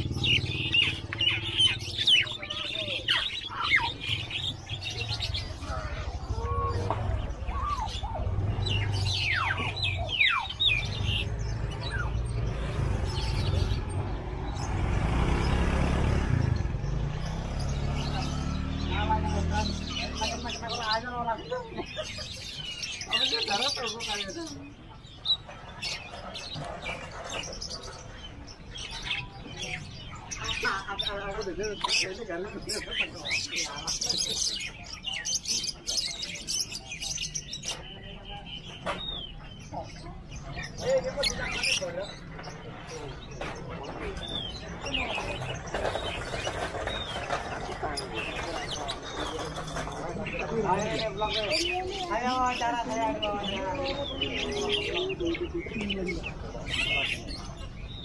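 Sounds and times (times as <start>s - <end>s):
birds chirping and whistling: 0.0s - 58.0s.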